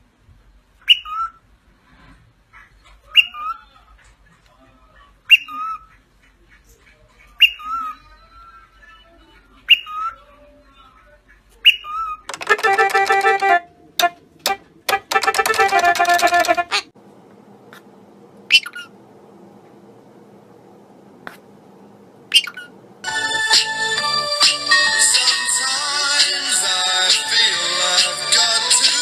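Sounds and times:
electronic keyboard note clusters: 0:12.3 - 0:16.8, 0:23.0 - 0:28.9
cockatiel whistling: 0:18.5 - 0:18.9, 0:22.3 - 0:22.7.

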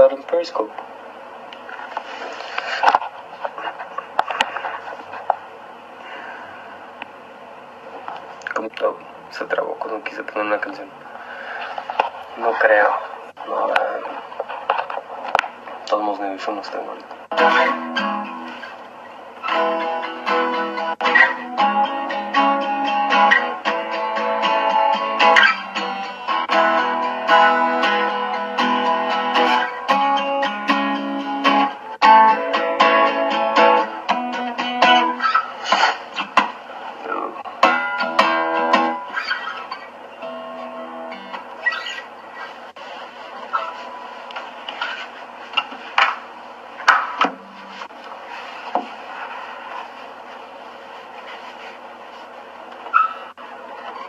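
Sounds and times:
acoustic guitar strumming chords: 0:17.3 - 0:18.8, 0:19.4 - 0:36.6, 0:37.4 - 0:41.6.

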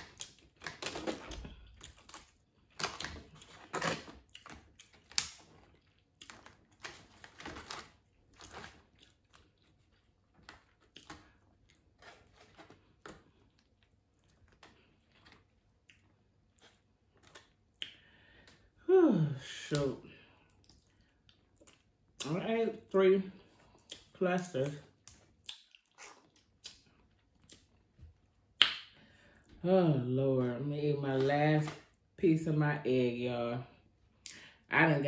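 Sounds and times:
chewing seafood: 0:00.0 - 0:18.7, 0:20.2 - 0:22.2, 0:23.4 - 0:29.5.

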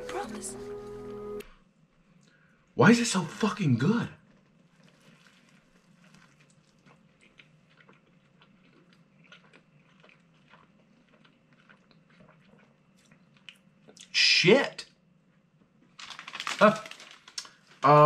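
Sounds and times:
chewing with mouth clicks: 0:04.4 - 0:14.1.

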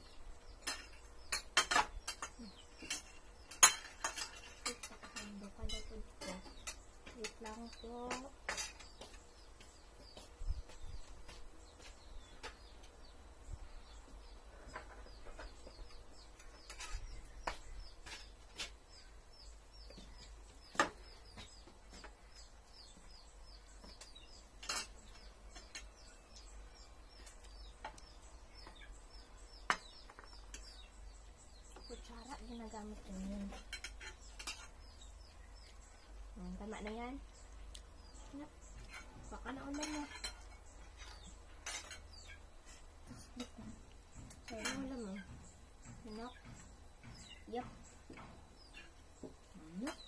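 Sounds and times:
small birds chirping: 0:00.0 - 0:50.0
cutlery clinking on ceramic plates: 0:00.6 - 0:07.4, 0:39.7 - 0:42.2.

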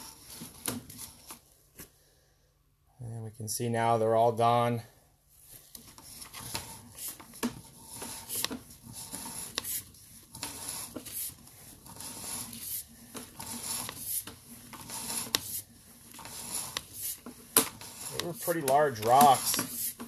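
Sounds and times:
push rod rubbing and scraping: 0:05.8 - 0:20.0.

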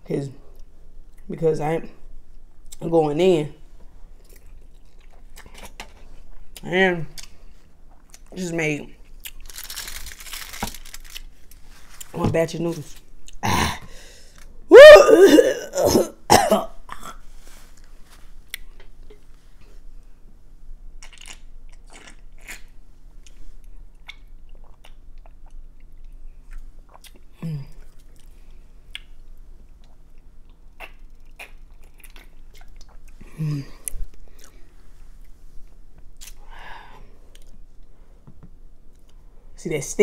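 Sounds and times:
wet chewing and lip smacks: 0:24.0 - 0:33.2, 0:36.1 - 0:36.4.

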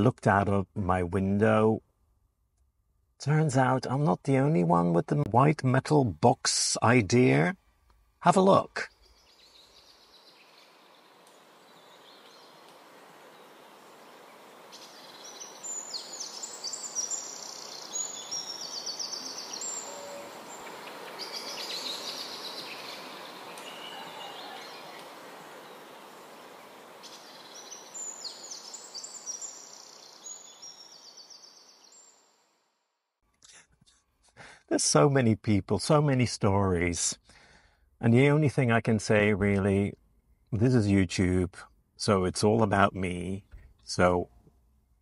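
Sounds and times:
outdoor background hiss: 0:00.0 - 0:45.0
songbird chirping: 0:03.2 - 0:32.4.

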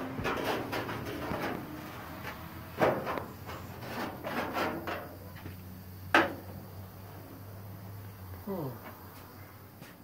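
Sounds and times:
knocks and rubbing: 0:00.0 - 0:06.5.

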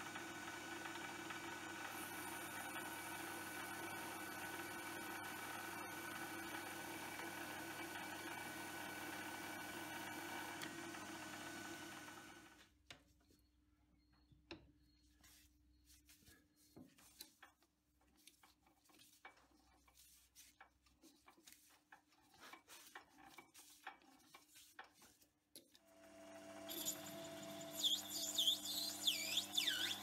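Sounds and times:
lathe motor starting: 0:00.0 - 0:12.6, 0:25.9 - 0:30.0.

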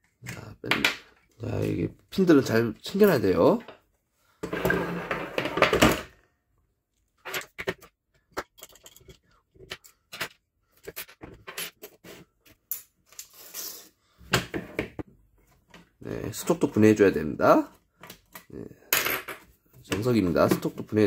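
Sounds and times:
rummaging and scraping on a table: 0:04.4 - 0:06.1, 0:07.2 - 0:16.0.

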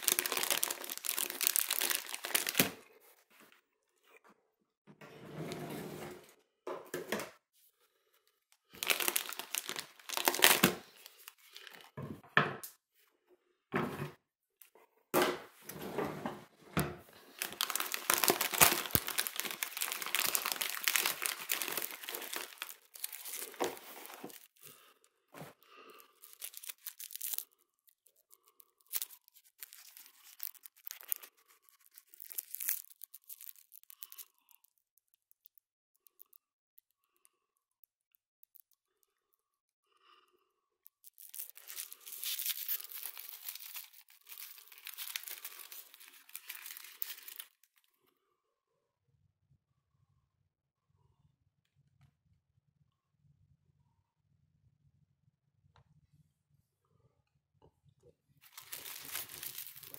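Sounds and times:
packaging rustling and crinkling: 0:00.0 - 0:03.5, 0:08.6 - 0:12.0, 0:17.1 - 0:24.8, 0:25.4 - 0:35.4, 0:41.0 - 0:47.8, 0:58.4 - 0:59.9.

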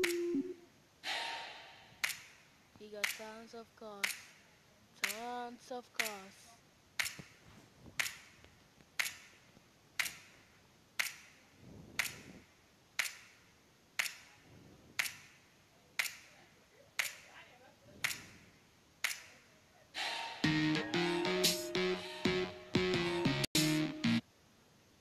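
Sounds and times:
sharp ticking clicks: 0:00.0 - 0:00.5, 0:05.0 - 0:05.3, 0:07.0 - 0:07.2, 0:09.0 - 0:09.3, 0:10.0 - 0:10.4, 0:11.0 - 0:11.3.

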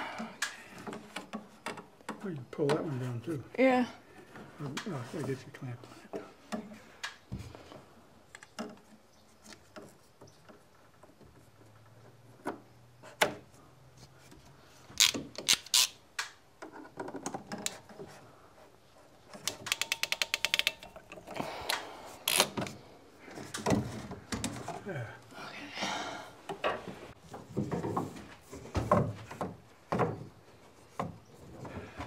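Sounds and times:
rapid ratchet clicks: 0:19.6 - 0:20.9.

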